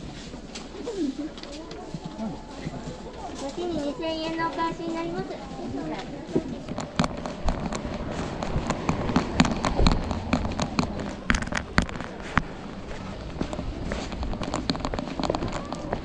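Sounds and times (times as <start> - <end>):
rapid sharp clicks and knocks: 6.7 - 12.6, 13.3 - 16.0.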